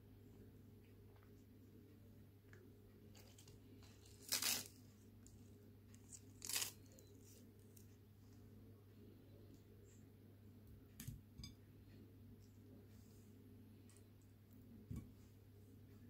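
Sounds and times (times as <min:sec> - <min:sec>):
lettuce leaves tearing: 0:03.2 - 0:04.8, 0:06.1 - 0:06.9.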